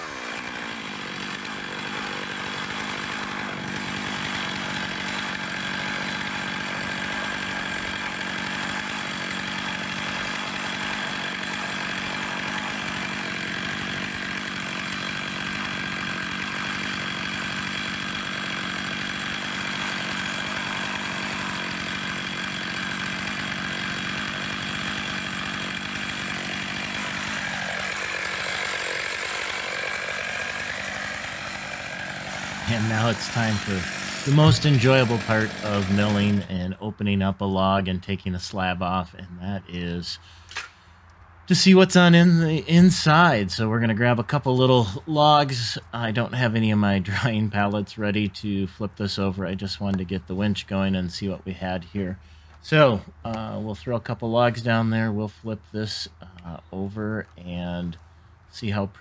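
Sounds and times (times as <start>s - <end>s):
chainsaw ripping log at full throttle: 0.0s - 36.7s.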